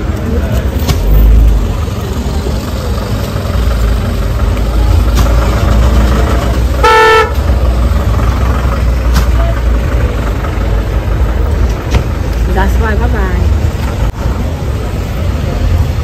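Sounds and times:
road traffic: 0.0s - 16.0s
vehicle horn honk: 6.8s - 7.4s.

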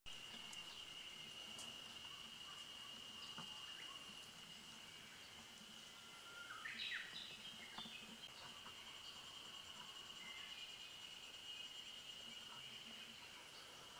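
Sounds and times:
faint insect buzz: 0.1s - 13.9s.

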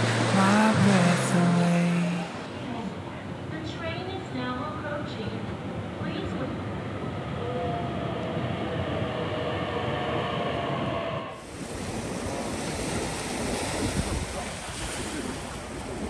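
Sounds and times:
sea surf rushing: 0.0s - 3.7s, 5.4s - 16.0s
electric train rumbling: 0.0s - 11.7s
faint train whine: 1.9s - 11.7s.

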